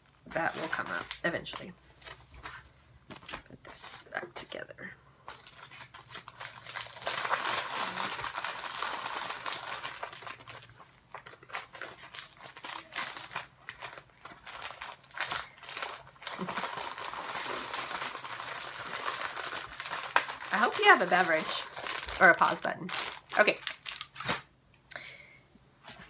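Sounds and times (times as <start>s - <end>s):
crinkling and rustling: 0.3s - 3.8s, 5.2s - 24.5s.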